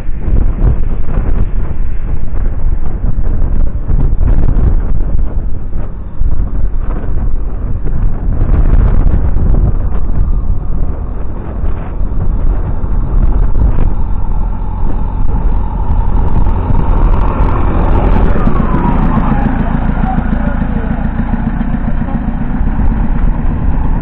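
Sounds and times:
diesel engine approaching: 0:00.0 - 0:24.0
wind rumble on microphone: 0:00.0 - 0:24.0.

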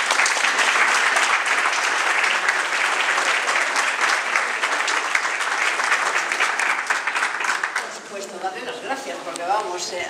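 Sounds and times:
crowd applauding: 0:00.0 - 0:08.3.

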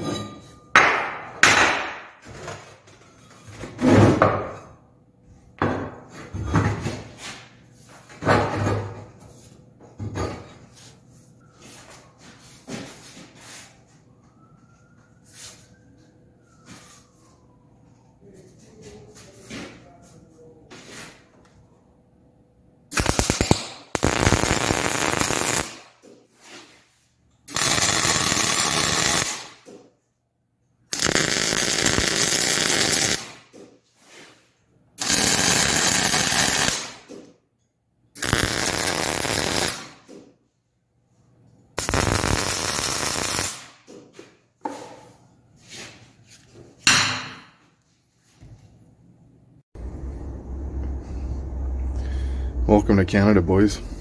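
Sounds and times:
welding arc crackle: 0:22.9 - 0:25.9, 0:27.5 - 0:29.6, 0:30.9 - 0:33.4, 0:35.0 - 0:37.0, 0:38.2 - 0:40.0, 0:41.8 - 0:43.7.

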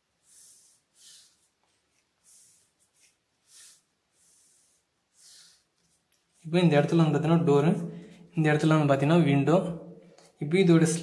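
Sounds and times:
pen scratching on paper: 0:00.2 - 0:06.5.

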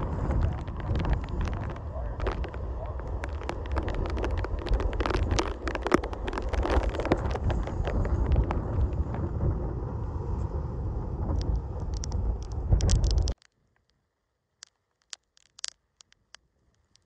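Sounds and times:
wind buffeting microphone: 0:00.0 - 0:13.4
crackles and rustles: 0:00.0 - 0:14.0, 0:14.6 - 0:17.0.

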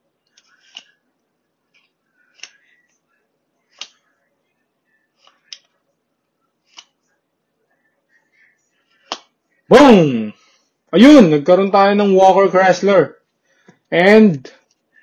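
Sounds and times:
card rustling: 0:00.3 - 0:01.0, 0:05.0 - 0:05.8
cards snapping: 0:01.7 - 0:02.7, 0:03.7 - 0:04.0, 0:09.0 - 0:09.3.

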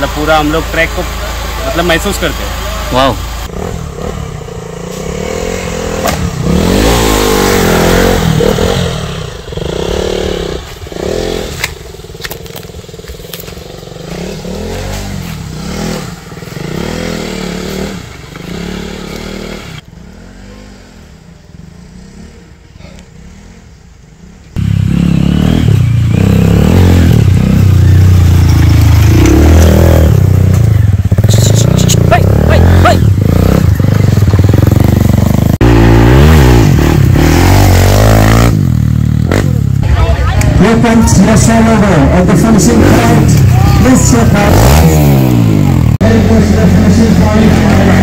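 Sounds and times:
motorcycle engines revving: 0:00.0 - 0:48.0.

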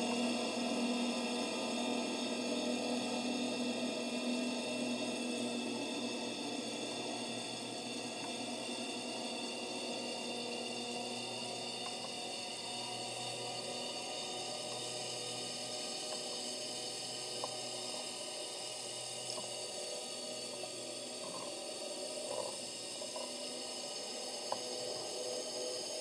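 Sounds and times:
steady mechanical hum: 0:00.0 - 0:26.0.

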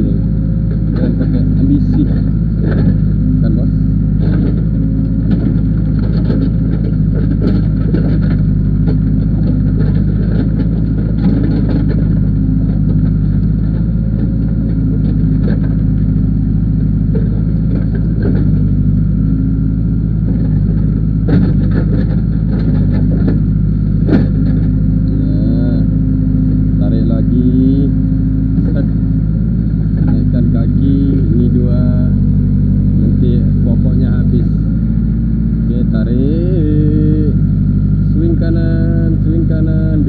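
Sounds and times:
diesel engine running: 0:00.0 - 0:40.0
short knocks and clicks: 0:00.7 - 0:03.1, 0:04.1 - 0:19.3, 0:20.2 - 0:25.2, 0:29.9 - 0:31.5.

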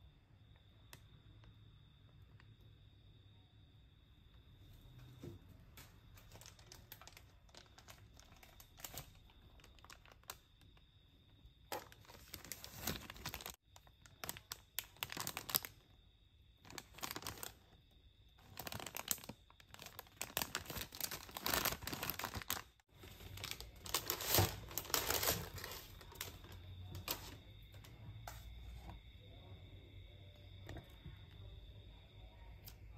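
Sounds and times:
paper packaging crinkling: 0:05.8 - 0:10.7, 0:11.6 - 0:15.9, 0:16.6 - 0:17.8, 0:18.4 - 0:27.4.

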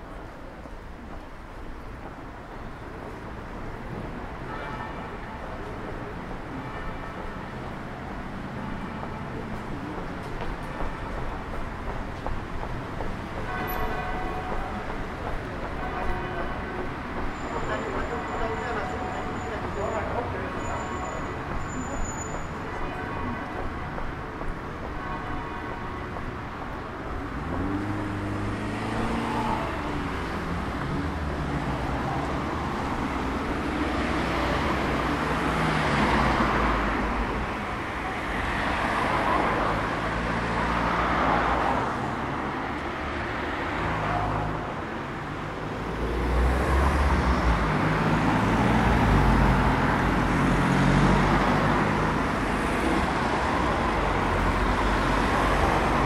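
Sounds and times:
cars driving past: 0:26.2 - 0:56.0.

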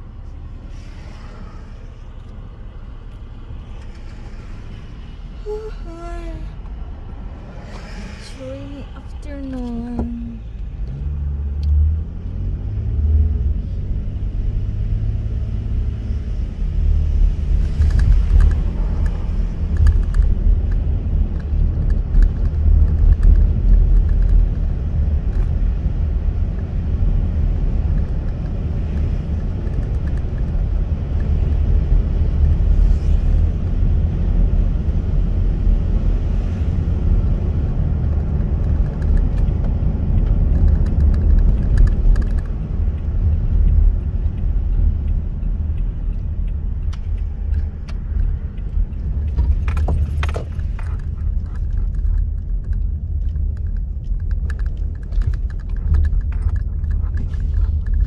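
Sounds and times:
car rumble on wet road: 0:00.0 - 0:58.0
clicks and rattles: 0:38.0 - 0:43.1, 0:46.9 - 0:58.0.

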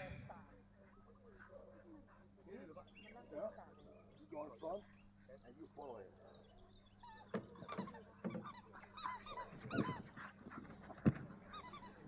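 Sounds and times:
puppy yelping and whining: 0:07.0 - 0:10.1, 0:11.5 - 0:12.0.

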